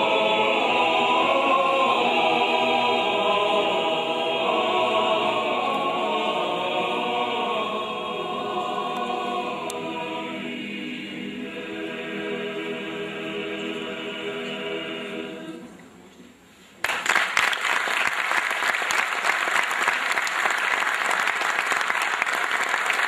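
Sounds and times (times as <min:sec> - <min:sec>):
mixed choir singing: 0:00.0 - 0:16.0
audience applause: 0:16.8 - 0:23.0.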